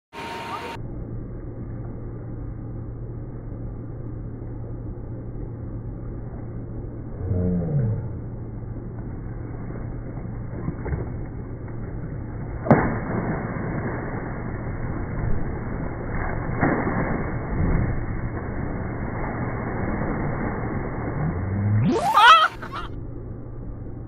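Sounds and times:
steady low hum: 0:00.1 - 0:24.0
falling tone: 0:00.2 - 0:24.0.

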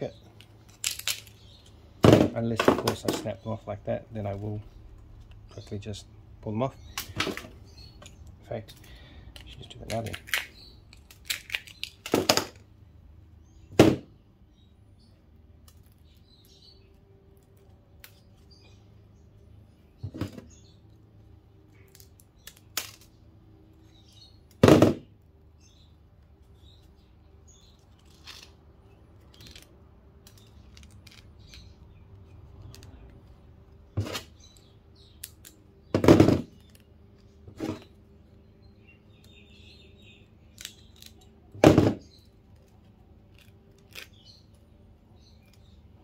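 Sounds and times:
transformers snapping apart: 0:22.4 - 0:23.1.

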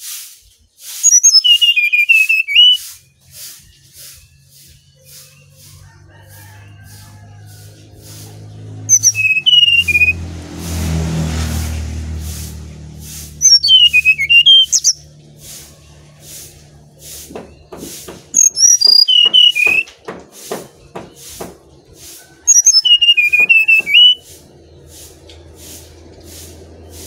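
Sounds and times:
bird singing whistled phrases: 0:01.0 - 0:03.1, 0:08.9 - 0:10.2, 0:13.4 - 0:15.0, 0:18.4 - 0:19.9, 0:22.5 - 0:24.2.

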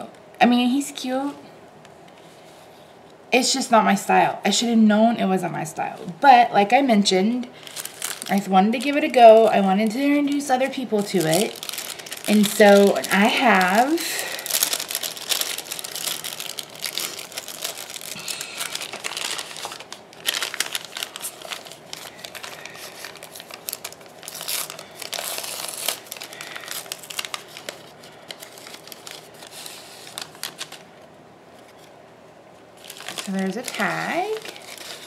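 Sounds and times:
plastic sleeves crinkling: 0:07.3 - 0:32.0, 0:32.6 - 0:35.0
paper bag rustling: 0:07.6 - 0:31.0, 0:32.8 - 0:35.0.

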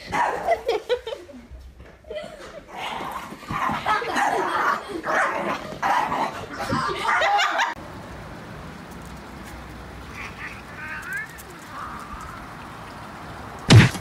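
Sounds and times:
dog barking: 0:00.1 - 0:00.6, 0:05.1 - 0:07.7.

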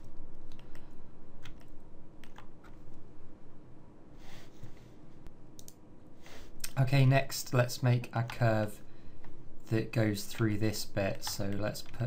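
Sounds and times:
keyboard and mouse clicks: 0:00.0 - 0:02.8, 0:05.6 - 0:05.8, 0:11.1 - 0:12.0.

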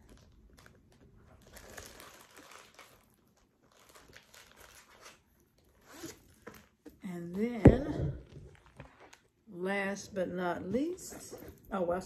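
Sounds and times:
plastic pouch crinkling: 0:00.0 - 0:06.8.

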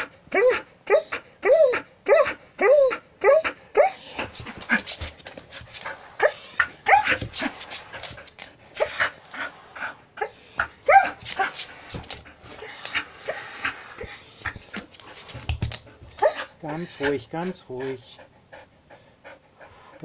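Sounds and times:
dog whimpering yelps: 0:00.0 - 0:04.3, 0:06.2 - 0:07.2, 0:08.8 - 0:11.6, 0:12.4 - 0:14.9, 0:16.1 - 0:17.2.

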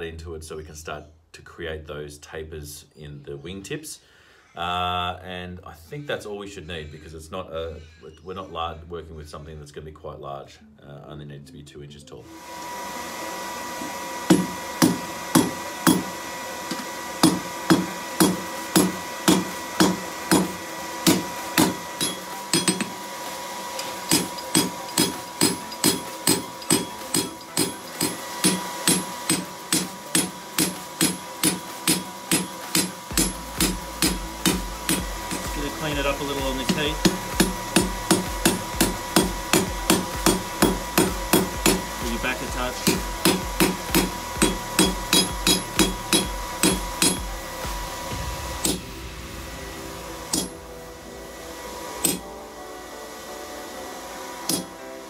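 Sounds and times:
steady hum: 0:12.3 - 0:55.0
hammer striking steel on anvil: 0:14.3 - 0:23.0, 0:23.8 - 0:49.1, 0:50.2 - 0:50.7, 0:52.0 - 0:52.3, 0:54.5 - 0:54.7.

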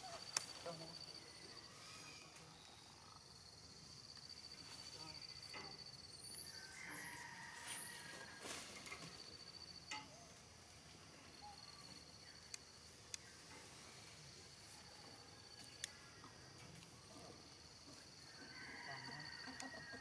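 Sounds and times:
insect trilling: 0:00.0 - 0:08.4.

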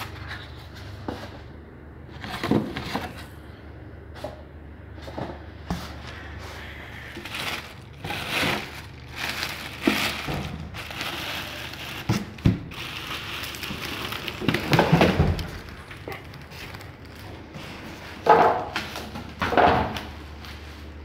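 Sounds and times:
plastic wrapping crinkling: 0:06.9 - 0:19.2.

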